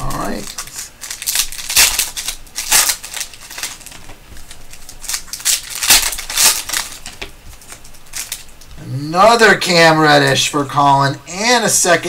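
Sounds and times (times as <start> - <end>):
foil wrapper crinkling: 0.0 - 8.8.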